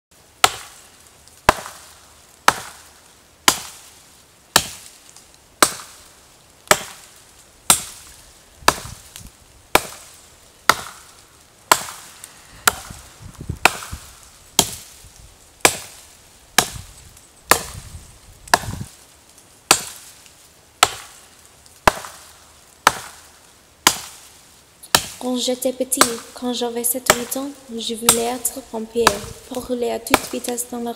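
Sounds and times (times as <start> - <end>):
axes chopping wood: 0.4 - 0.8, 1.5 - 3.8, 4.5 - 4.9, 5.6 - 6.0, 6.6 - 7.1, 7.7 - 8.1, 8.7 - 9.1, 9.7 - 10.1, 10.7 - 11.1, 11.7 - 13.0, 13.6 - 15.0, 15.6 - 16.0, 16.6 - 16.8, 17.5 - 17.8, 18.5 - 18.9, 19.7 - 20.0, 20.8 - 21.2, 21.8 - 23.2, 23.8 - 24.2, 24.9 - 25.2, 27.1 - 27.3, 29.0 - 30.5.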